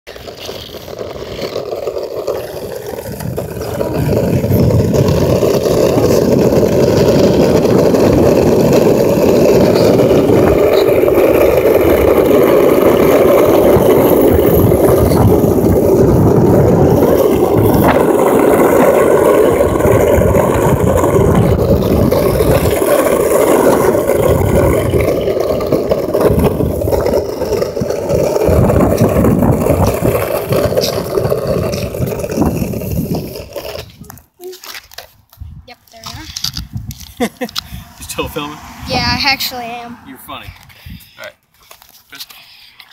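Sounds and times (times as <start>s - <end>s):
skateboard wheels rolling on asphalt: 0.1s - 42.9s.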